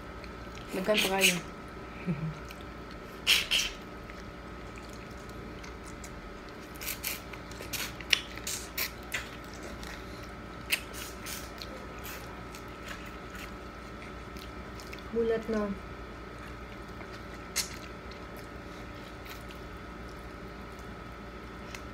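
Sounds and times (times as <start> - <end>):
lips smacking: 2.4 - 6.1.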